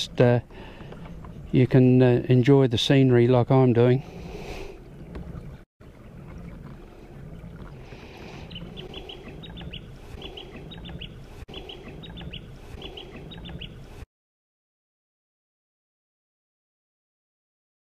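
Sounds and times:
low rhythmic rumble of kayak: 0:00.0 - 0:14.0
birds chirping: 0:06.2 - 0:14.0.

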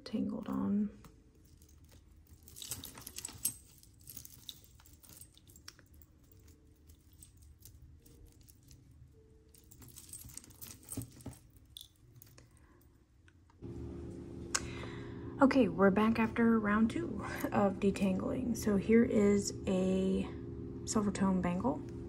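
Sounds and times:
small clicks of chain links: 0:00.5 - 0:12.6
metal chains jingling: 0:01.4 - 0:12.4.

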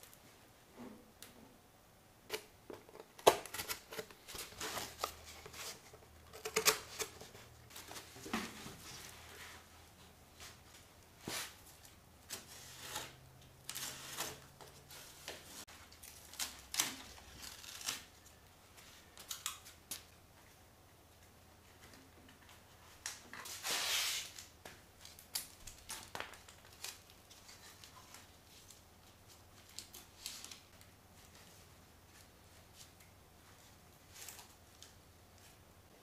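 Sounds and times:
cardboard rustling and scraping: 0:02.3 - 0:09.7, 0:23.3 - 0:24.4.

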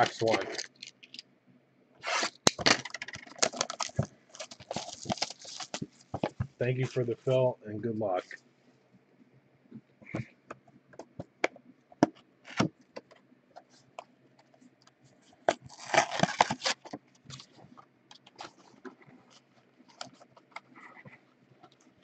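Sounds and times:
plastic wrap crinkling and tearing: 0:02.0 - 0:06.2, 0:15.5 - 0:17.6.

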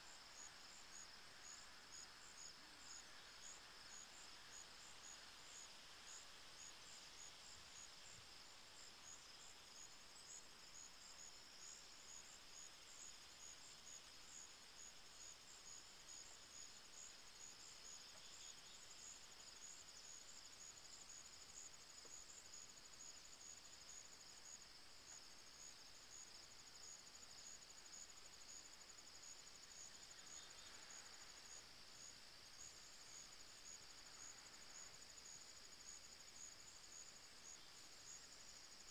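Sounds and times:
soft hiss: 0:00.0 - 0:38.9
insects trilling: 0:25.7 - 0:38.9.

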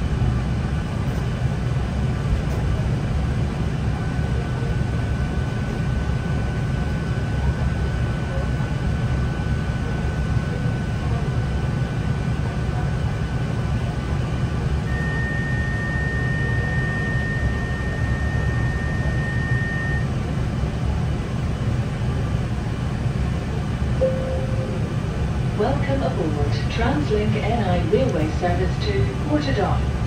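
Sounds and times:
train engine rumble: 0:00.0 - 0:30.0
thin high whine: 0:24.0 - 0:25.3.

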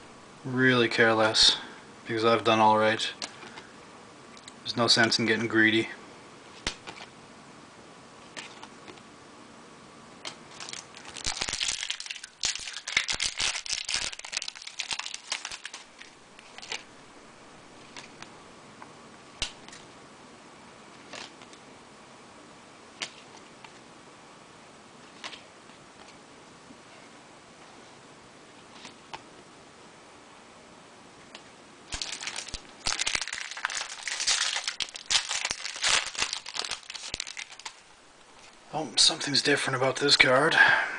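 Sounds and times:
foil wrapper tearing and crinkling: 0:10.5 - 0:16.9, 0:31.9 - 0:37.8.

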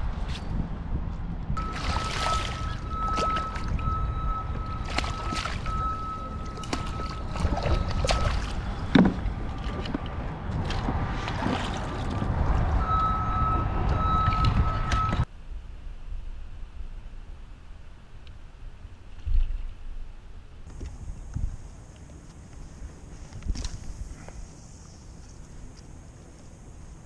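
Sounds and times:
wind buffeting microphone: 0:00.0 - 0:17.8, 0:18.7 - 0:21.9
thin steady tone: 0:01.6 - 0:08.6
water sloshing: 0:01.6 - 0:12.2.

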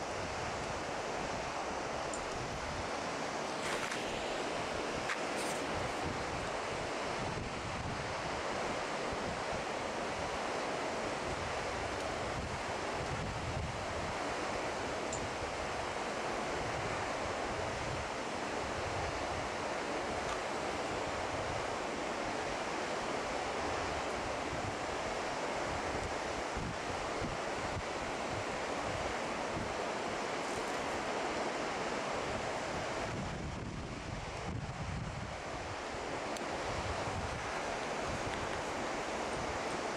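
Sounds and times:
rushing water: 0:00.0 - 0:39.9
wind buffeting microphone: 0:32.8 - 0:36.0.

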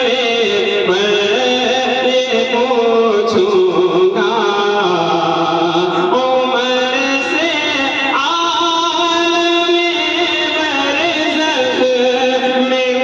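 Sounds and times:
man singing into a microphone: 0:00.0 - 0:13.0.

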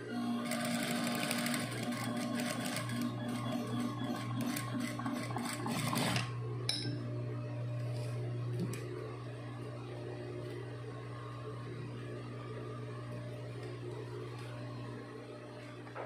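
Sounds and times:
sewing machine stitching: 0:00.1 - 0:06.3.

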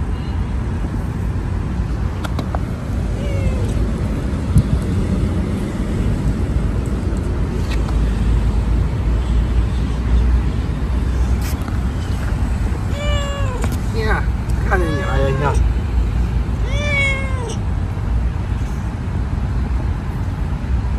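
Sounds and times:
steady low rumble: 0:00.0 - 0:14.7
kitten mewing: 0:03.1 - 0:03.8, 0:12.8 - 0:13.9, 0:14.6 - 0:15.8, 0:16.5 - 0:17.7.

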